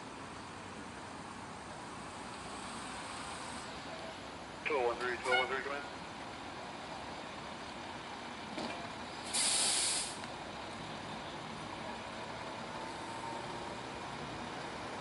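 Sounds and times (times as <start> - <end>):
fire engine idling: 0.0 - 15.0
air brakes hissing: 9.2 - 10.2.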